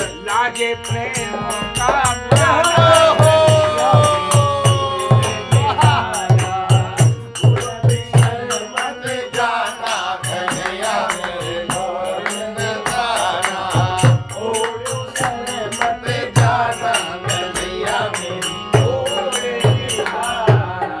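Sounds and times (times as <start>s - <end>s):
harmonium: 0.0s - 21.0s
men singing together: 0.0s - 21.0s
hand claps: 10.3s - 13.9s.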